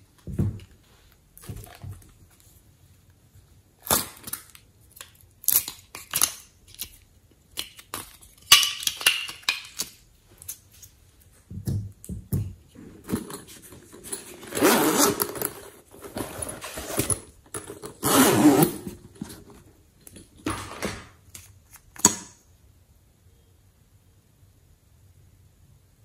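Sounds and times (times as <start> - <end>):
small items clattering: 12.8 - 21.0
zipper rasping: 13.8 - 17.2, 17.9 - 19.4.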